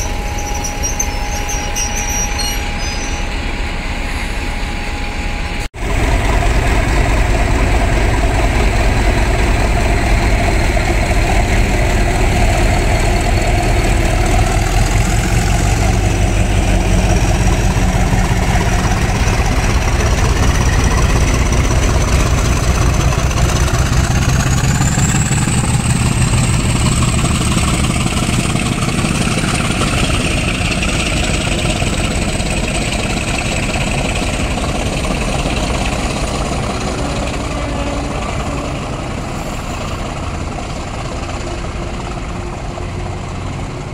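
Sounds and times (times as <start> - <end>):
high whine rising in pitch: 0.0 - 6.8
diesel locomotive engine rumbling: 0.0 - 43.9.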